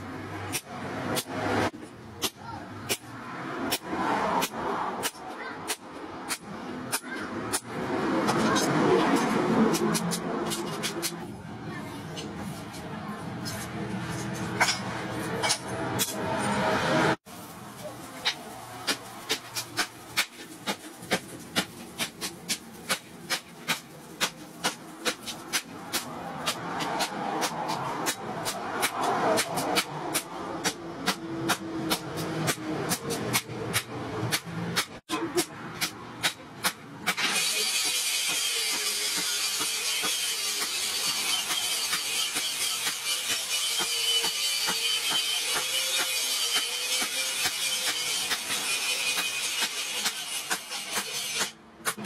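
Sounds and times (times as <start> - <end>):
hammer striking steel on anvil: 21.1 - 52.0.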